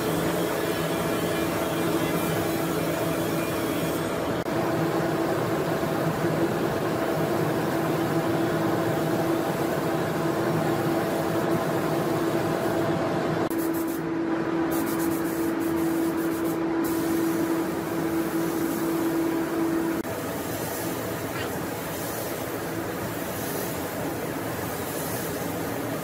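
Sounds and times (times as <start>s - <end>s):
spray gun hissing: 8.9s - 12.8s, 13.5s - 14.0s, 14.7s - 26.0s.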